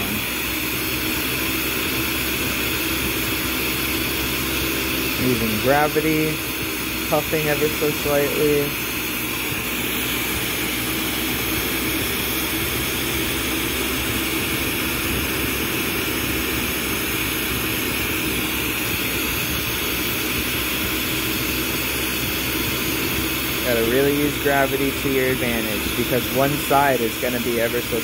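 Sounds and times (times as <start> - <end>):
torch flame hissing: 0.0 - 28.0.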